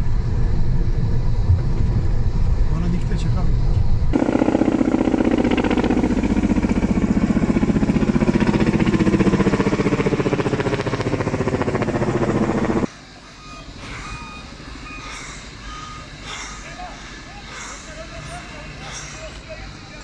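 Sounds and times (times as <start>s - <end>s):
helicopter rotor beating: 0.0s - 20.0s
vehicle reversing beeper: 12.1s - 20.0s.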